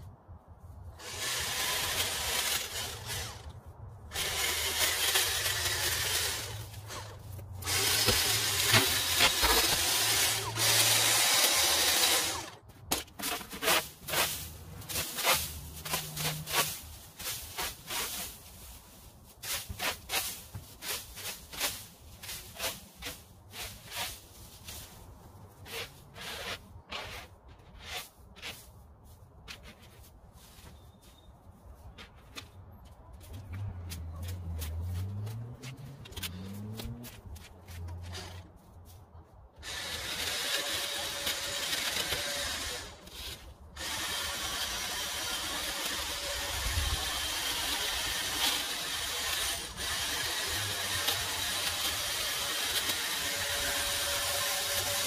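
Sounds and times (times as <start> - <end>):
rake scraping on concrete: 0.9 - 32.6, 33.2 - 39.0
string trimmer running: 4.1 - 12.6, 39.6 - 55.0.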